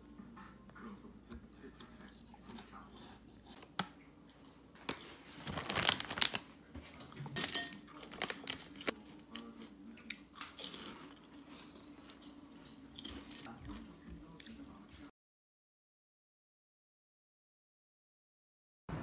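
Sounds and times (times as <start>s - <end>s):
snack bag crinkling: 4.8s - 6.5s, 7.4s - 9.5s.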